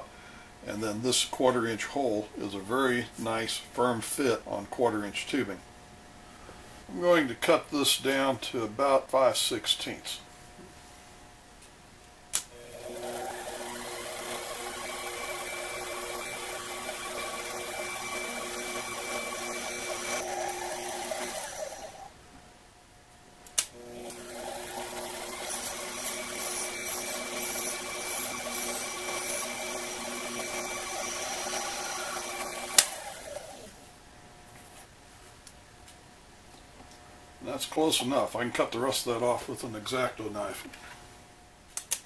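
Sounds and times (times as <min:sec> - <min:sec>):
metal lathe running: 0:12.6 - 0:22.1, 0:23.8 - 0:33.7
sharp click: 0:41.8 - 0:42.0.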